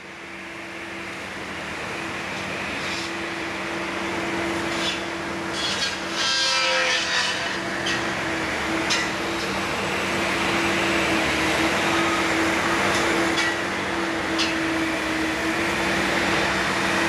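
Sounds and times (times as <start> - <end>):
machine engine hum: 7.3 - 17.0.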